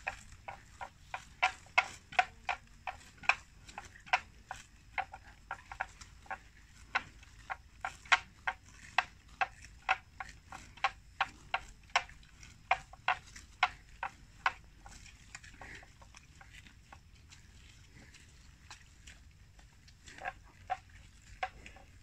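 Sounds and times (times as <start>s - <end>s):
buffalo tearing grass: 0.0s - 19.4s.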